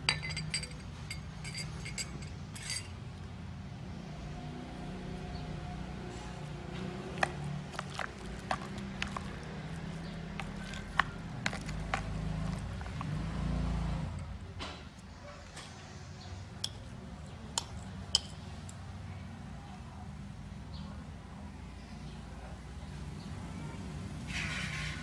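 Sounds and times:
wet squishing: 0:06.8 - 0:13.3.

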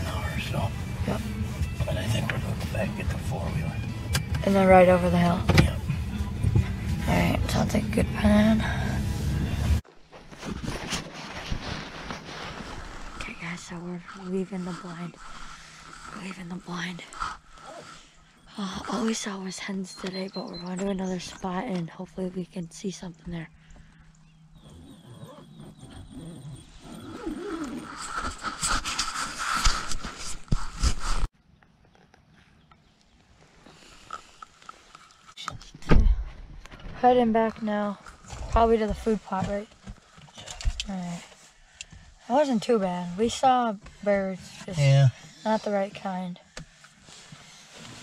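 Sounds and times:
microphone rubbing on jacket: 0:08.3 - 0:18.2, 0:24.6 - 0:31.3, 0:38.0 - 0:48.0
faint clothing rustling: 0:09.0 - 0:18.3.

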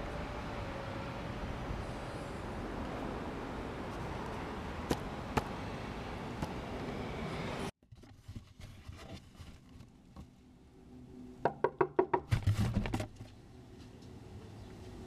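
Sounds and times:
rustling handling noise: 0:07.9 - 0:10.4
knocking on a door: 0:11.5 - 0:12.3.

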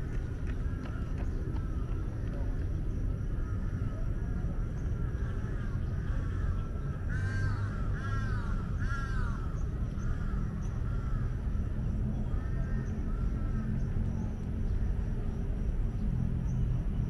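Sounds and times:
crows cawing: 0:05.2 - 0:11.7, 0:12.3 - 0:13.8.

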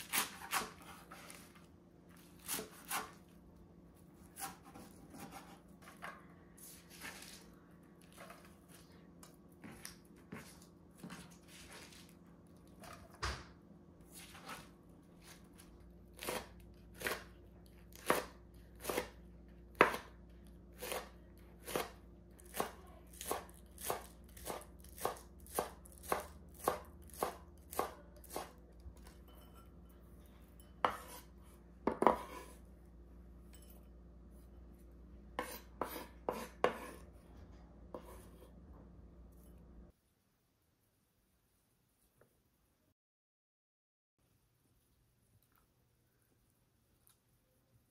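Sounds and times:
knife chopping on wooden board: 0:00.0 - 0:01.3, 0:02.4 - 0:03.2, 0:04.3 - 0:06.0, 0:18.0 - 0:20.2, 0:20.8 - 0:28.6, 0:30.8 - 0:32.6, 0:35.4 - 0:37.0.

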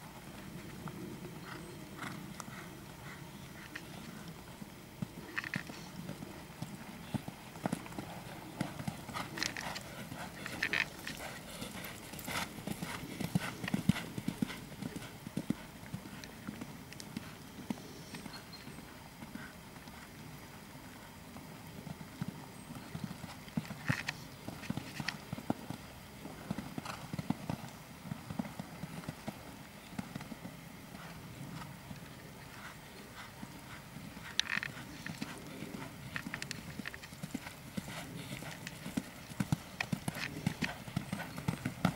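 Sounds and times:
horse hoofbeats on sand: 0:06.6 - 0:16.2, 0:32.6 - 0:41.9.

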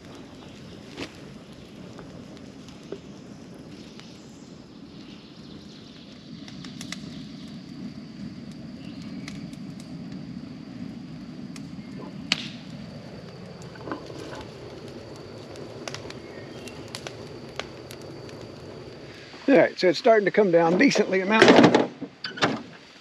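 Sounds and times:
tractor engine running: 0:09.5 - 0:22.1.

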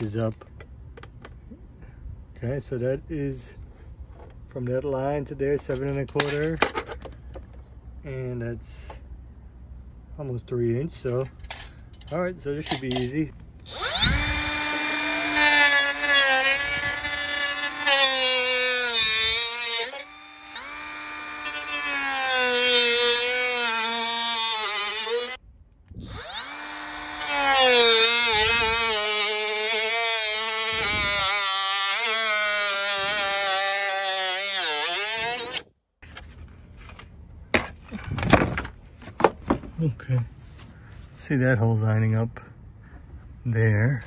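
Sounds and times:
cut-off tool cutting plastic: 0:13.6 - 0:25.4.

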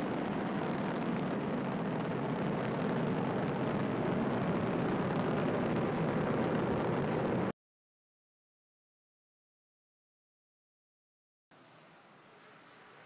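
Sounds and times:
rocket launch rumble: 0:00.0 - 0:07.5.

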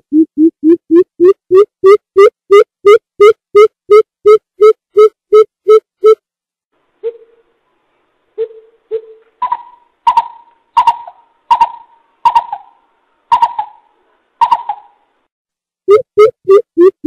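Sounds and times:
bird calling with hollow hoots: 0:07.0 - 0:07.4, 0:08.4 - 0:15.0.

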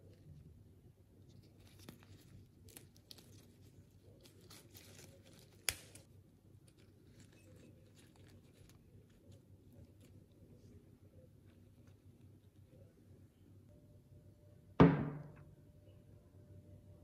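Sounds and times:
rustling and crinkling of petals: 0:00.0 - 0:13.0.

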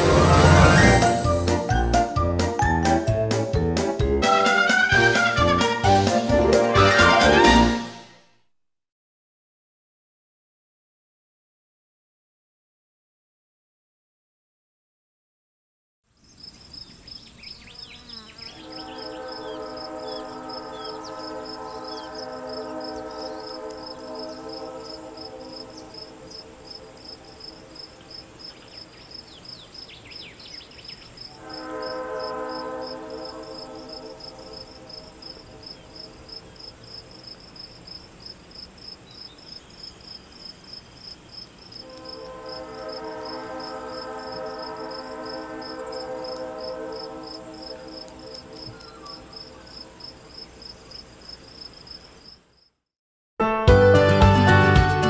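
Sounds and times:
locomotive drone: 0:00.0 - 0:03.3, 0:18.6 - 0:28.4, 0:41.9 - 0:49.4
crickets chirping: 0:16.1 - 0:52.8
bird chirps: 0:16.2 - 0:22.2, 0:28.5 - 0:31.3, 0:48.6 - 0:49.8
held chord of steady tones: 0:18.5 - 0:28.3, 0:31.4 - 0:36.3, 0:41.9 - 0:49.4.

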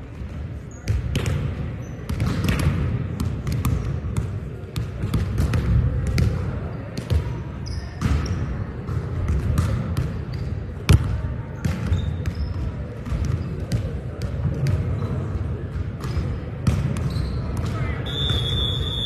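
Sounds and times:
volleyballs hit and bouncing: 0:00.0 - 0:18.6
sneaker squeaks: 0:01.8 - 0:02.4, 0:07.6 - 0:08.5, 0:10.3 - 0:10.8, 0:11.6 - 0:13.6, 0:16.0 - 0:19.0.

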